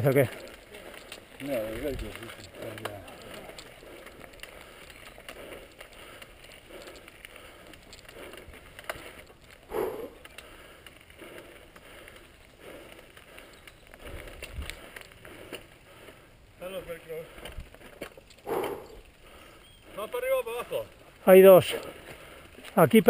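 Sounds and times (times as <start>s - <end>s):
bike clicks and knocks: 0.0s - 15.7s, 17.4s - 19.8s
bike tyres crunching over dirt: 0.0s - 23.0s.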